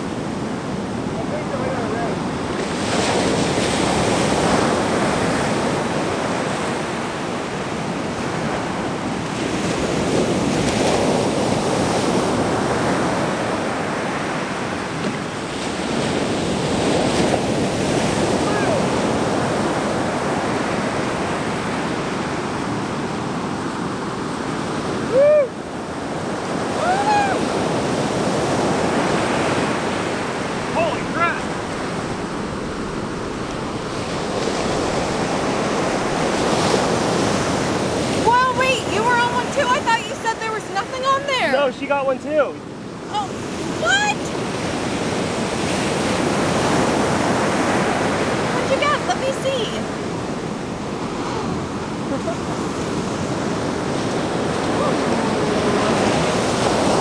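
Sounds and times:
wind on microphone: 0.0 - 41.5, 42.7 - 57.0
ocean surf breaking: 0.0 - 57.0
loud rising and falling cry: 25.1 - 25.6, 26.7 - 27.5.

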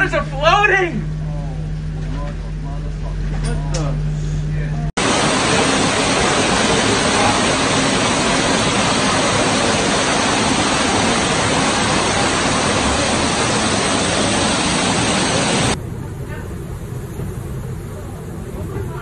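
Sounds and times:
loud rush of floodwater: 5.0 - 15.8.

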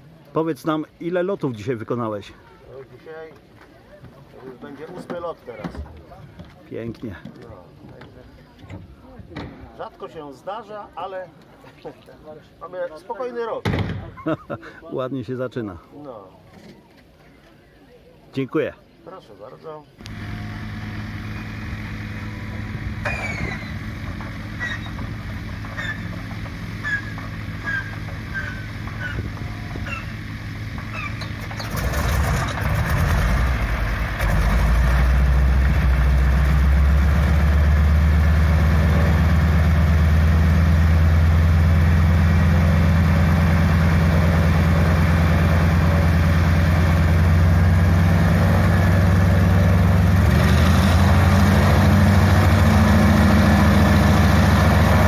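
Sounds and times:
radial aircraft engine: 20.0 - 34.9.

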